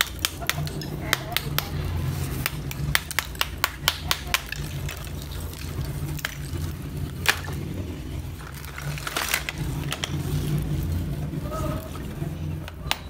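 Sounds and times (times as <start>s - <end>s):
clay piece snapping: 0.0s - 1.8s, 2.4s - 5.2s
steady low hum: 0.0s - 13.0s.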